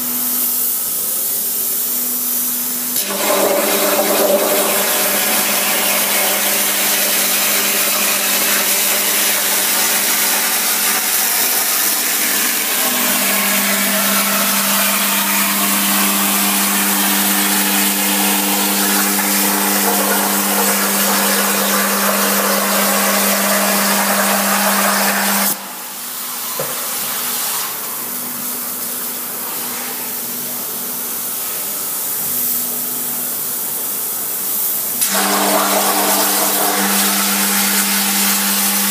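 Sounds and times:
plasma cutter arc hissing: 0.0 - 27.8.

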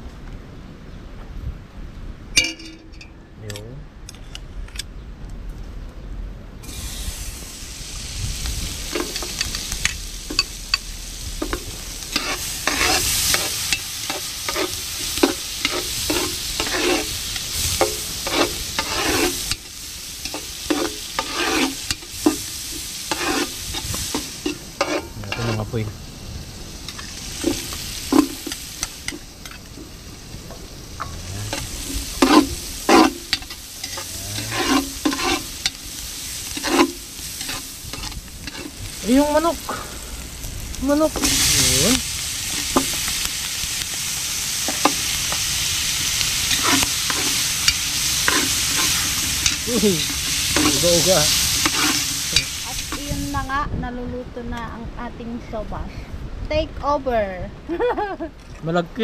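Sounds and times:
onions sizzling in a pot: 6.6 - 55.7
metal ladle scraping a pot: 11.4 - 25.7, 31.0 - 35.8, 36.4 - 38.8, 46.1 - 53.0.

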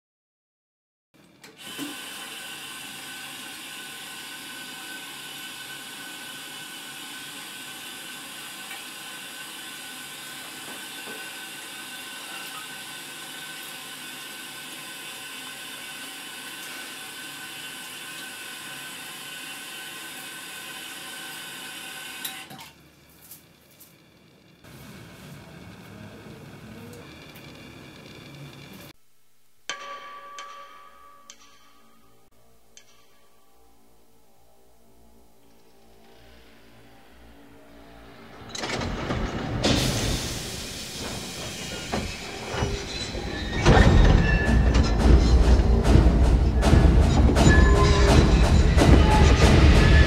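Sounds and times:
sink tap running: 1.5 - 22.4.

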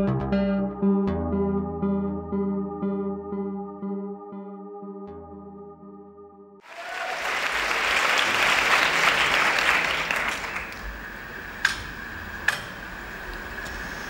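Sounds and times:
audience applauding: 6.6 - 11.4
low murmur of hall: 6.7 - 14.0.

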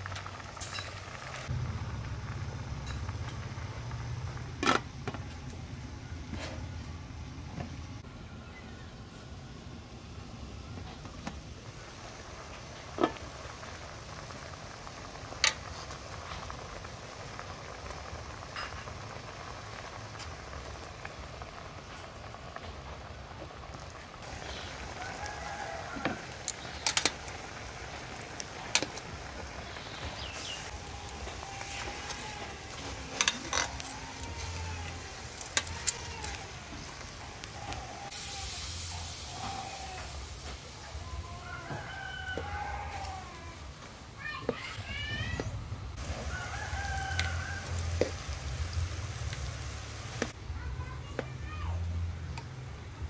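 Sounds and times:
pot bubbling at a simmer: 0.0 - 8.1, 9.4 - 53.0.

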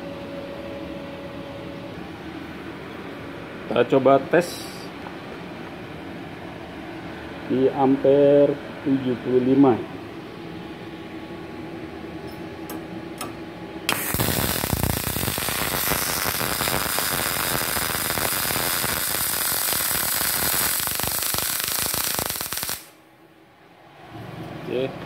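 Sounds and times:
welding arc crackling hiss: 13.9 - 23.0.

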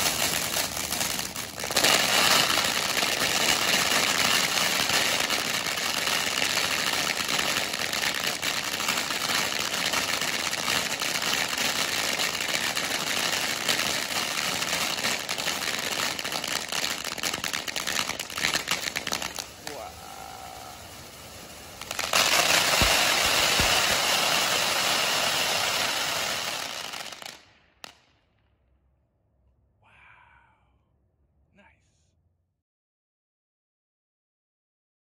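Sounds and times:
firework fountain hissing: 0.0 - 27.4
firework crackling: 0.0 - 28.2.

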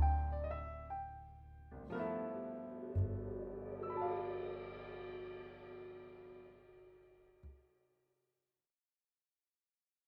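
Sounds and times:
piano music: 0.0 - 6.8.

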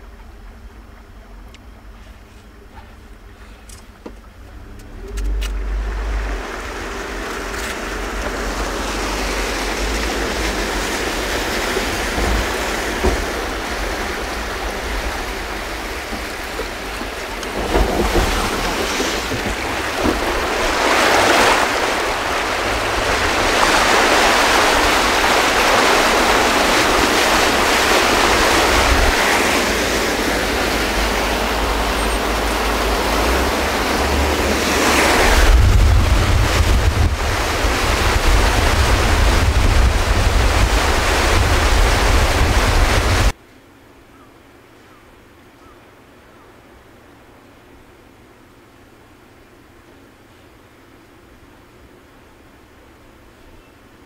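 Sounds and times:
water splashing against car: 3.8 - 43.4
low rumble: 27.6 - 43.3.

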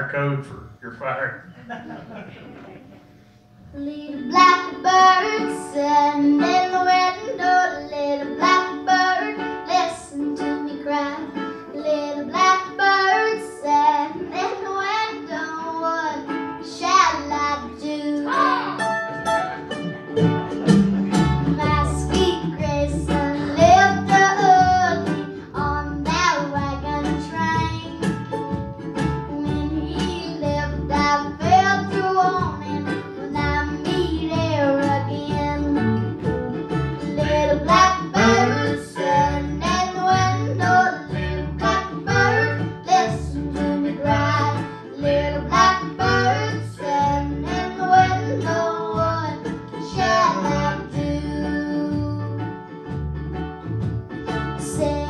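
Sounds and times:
upright bass plucking: 0.0 - 3.0, 11.8 - 55.0
mandolin and guitar strumming: 0.0 - 55.0
hand drum: 18.6 - 25.4, 26.2 - 42.5
woman singing: 37.0 - 52.4, 54.6 - 55.0.

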